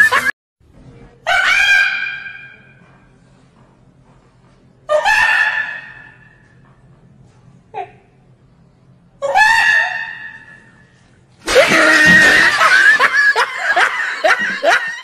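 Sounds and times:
chaotic screams: 0:11.5 - 0:12.9.

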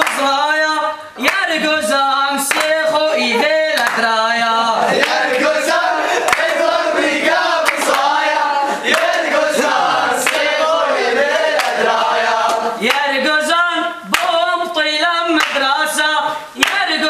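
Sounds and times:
hand claps: 0:00.0 - 0:00.5, 0:01.2 - 0:01.6, 0:02.4 - 0:04.2, 0:05.0 - 0:05.5, 0:06.2 - 0:13.2, 0:14.1 - 0:15.9, 0:16.6 - 0:17.0
men singing chant-like song: 0:00.0 - 0:17.0.

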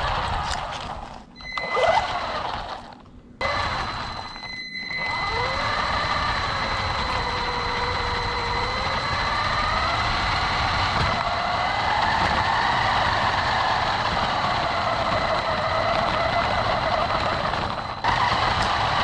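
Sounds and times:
rc car motor whining: 0:00.0 - 0:19.0
tyre rumble on rough asphalt: 0:10.0 - 0:19.0.

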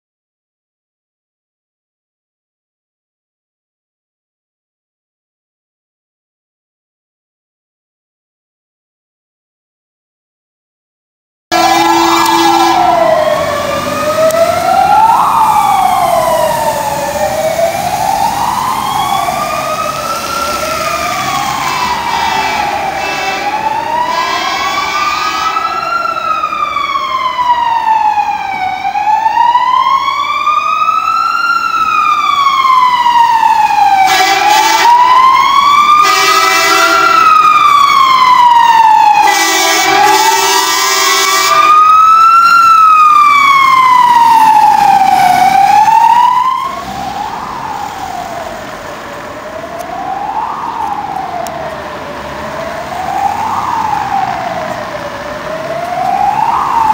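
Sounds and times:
air horn blasts: 0:11.5 - 0:13.3, 0:21.7 - 0:25.8, 0:34.0 - 0:35.1, 0:36.0 - 0:37.3, 0:39.2 - 0:41.9
fire engine siren wailing: 0:11.5 - 0:56.9.

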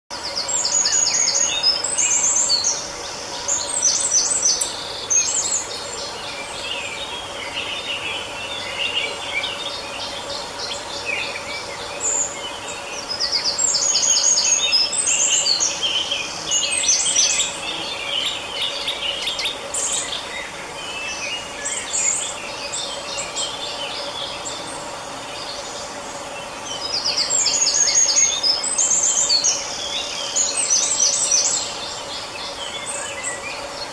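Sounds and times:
birds chirping and twittering: 0:00.1 - 0:33.9
faint steady hum: 0:00.1 - 0:33.9.

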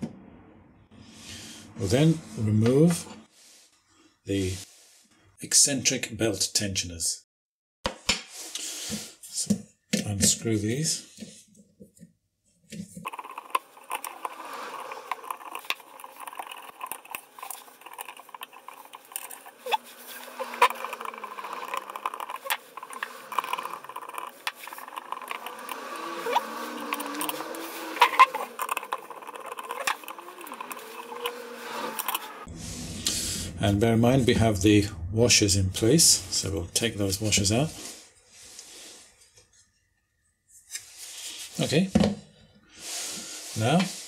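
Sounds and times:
short squeaky gliding tones: 0:16.0 - 0:33.6.

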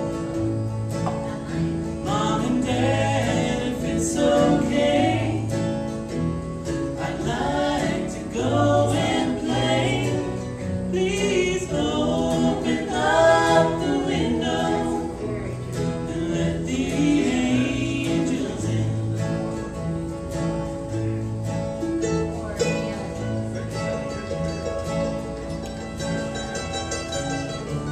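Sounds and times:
bluegrass band playing: 0:00.0 - 0:27.9
harmony singing: 0:01.2 - 0:19.9.

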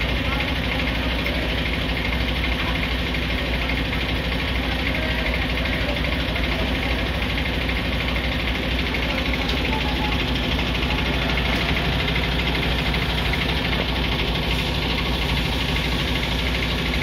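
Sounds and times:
diesel truck engine idling: 0:00.0 - 0:17.0.

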